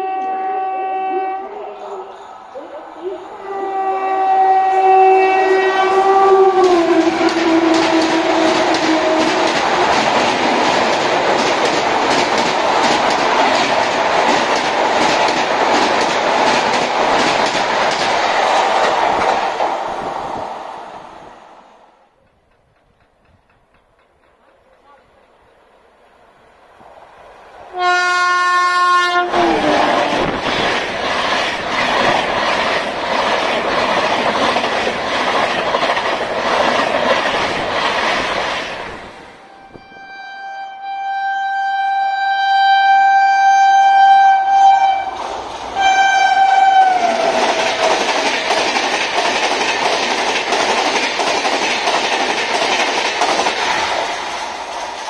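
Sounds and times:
locomotive horn blast: 0.0 - 1.8, 3.4 - 9.5, 27.7 - 30.2, 39.4 - 45.2, 45.8 - 47.4
train wheels rushing on rails: 4.3 - 39.8, 44.7 - 55.0
clicking over rail joints: 22.2 - 25.3.

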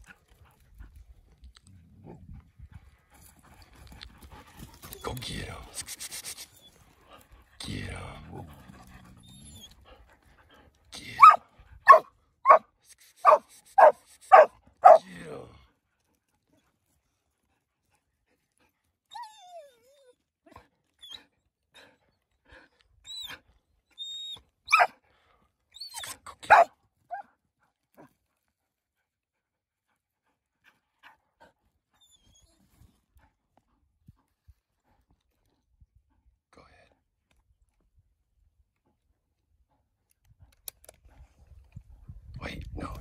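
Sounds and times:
dog barking: 11.2 - 15.1, 24.7 - 24.9, 26.4 - 27.3.

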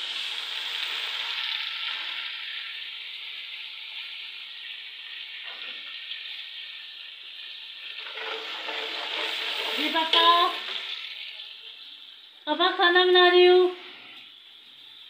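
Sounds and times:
curry sizzling in hot oil: 0.0 - 15.0.

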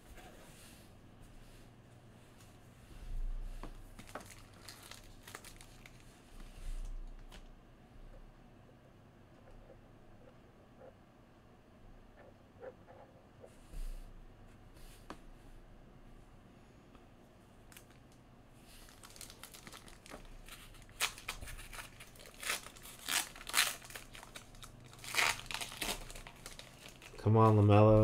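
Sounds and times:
foil wrapper crinkling and tearing: 4.0 - 6.1, 18.8 - 27.3.

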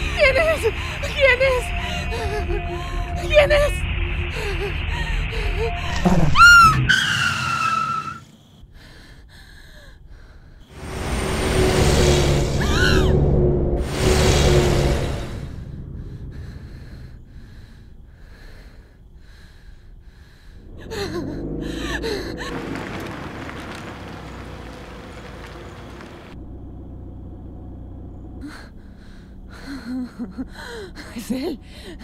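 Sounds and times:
person breathing fast: 8.6 - 10.7, 15.6 - 22.6, 28.4 - 32.0.

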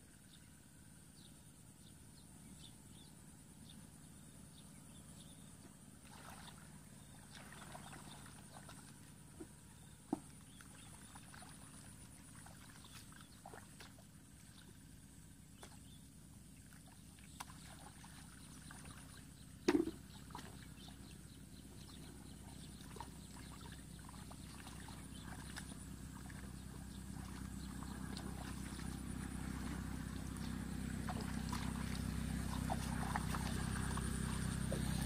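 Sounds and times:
water splashing: 6.0 - 9.1, 16.6 - 21.1, 21.8 - 35.0
hands sloshing through muddy water: 6.0 - 35.0.

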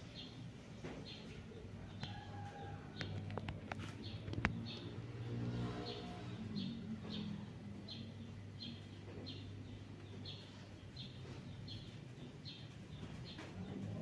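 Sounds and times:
wall fan motor hum: 0.0 - 14.0.

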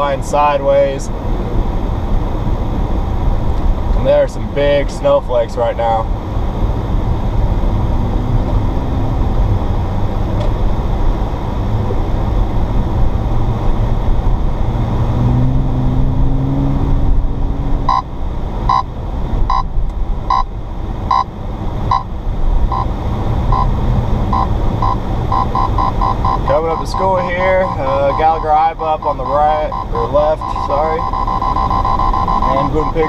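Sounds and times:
car cabin rumble: 15.9 - 33.0
radar detector beeping: 17.9 - 18.1, 18.7 - 18.9, 19.5 - 19.7, 20.3 - 20.5, 21.1 - 21.3, 21.9 - 22.1, 22.7 - 33.0.

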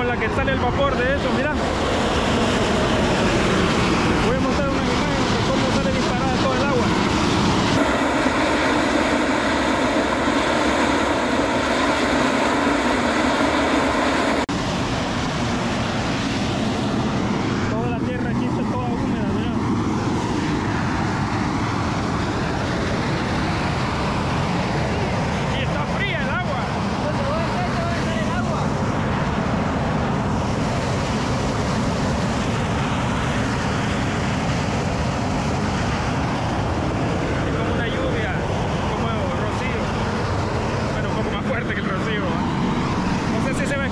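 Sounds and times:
steam jetting with rushing hiss: 7.0 - 14.5.

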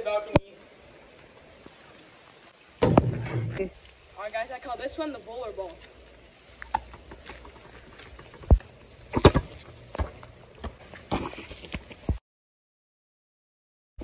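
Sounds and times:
basketball bouncing on wet asphalt: 2.8 - 3.6, 6.6 - 12.2.

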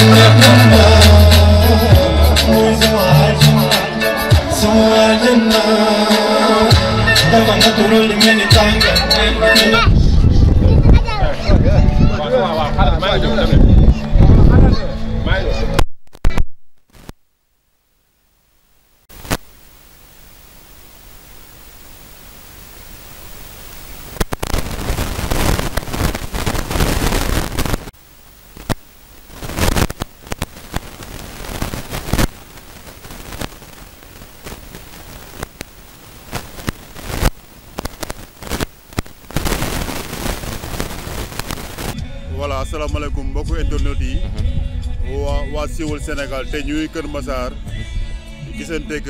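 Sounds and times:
static hiss with crackles: 0.0 - 9.9, 15.8 - 42.0.

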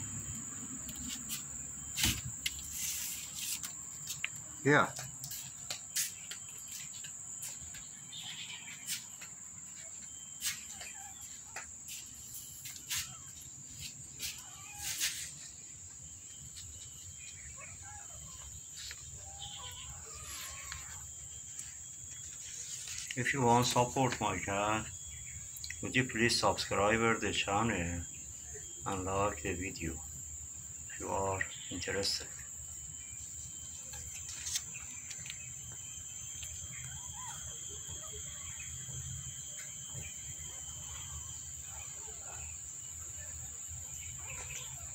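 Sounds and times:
high-pitched insect drone: 0.0 - 44.9
cats mewing faintly: 14.2 - 15.3.

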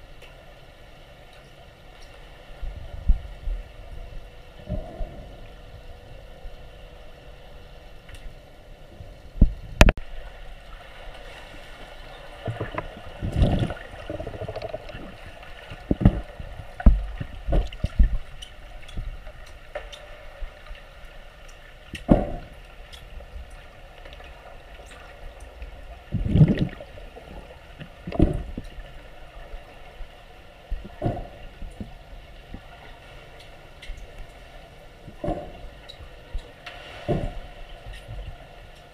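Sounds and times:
underwater hum: 0.0 - 38.9
muffled low thumps and knocks: 15.8 - 18.2, 27.8 - 28.7.

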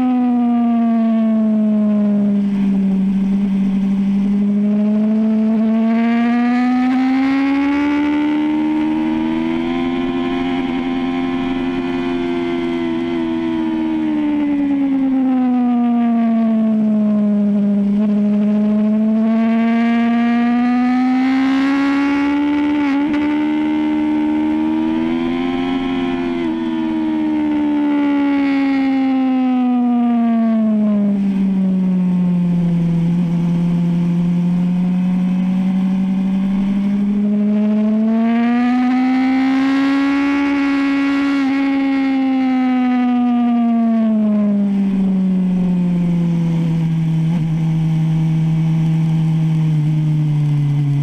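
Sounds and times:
motorcycle engine at high revs: 1.6 - 51.0.

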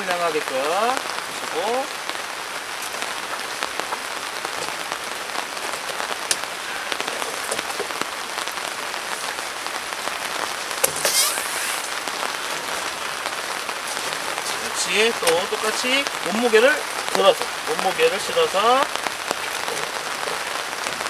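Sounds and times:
rain on a tarp and gravel: 0.0 - 21.0
short scrape: 10.9 - 11.9.

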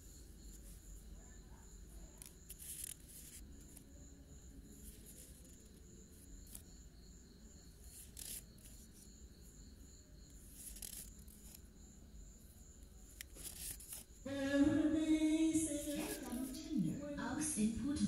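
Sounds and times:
banknotes rustling: 2.0 - 3.8, 7.8 - 9.0, 10.3 - 11.6, 13.0 - 14.2, 15.7 - 16.7
music: 14.2 - 18.0
person speaking: 14.3 - 18.0.

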